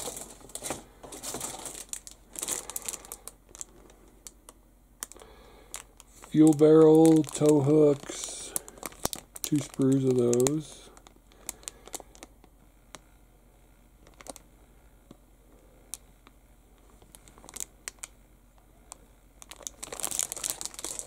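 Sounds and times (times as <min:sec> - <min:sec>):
plastic bag crinkling: 0:00.0 - 0:12.4, 0:14.0 - 0:14.5, 0:17.0 - 0:18.1, 0:18.9 - 0:21.0.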